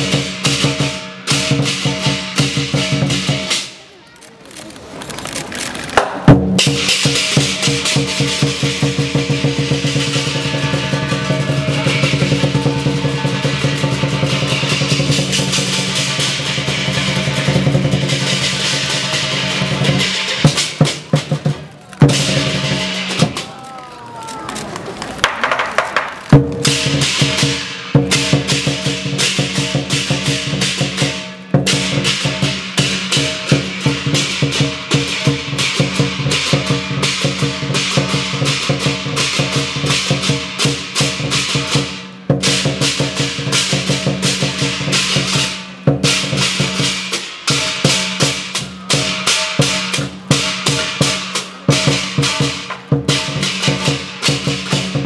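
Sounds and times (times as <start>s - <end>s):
crashing cymbals: 0.0s - 3.8s, 6.3s - 21.5s, 22.1s - 23.4s, 26.4s - 55.0s
drum beaten rapidly: 0.0s - 3.9s, 5.9s - 23.6s, 25.2s - 55.0s.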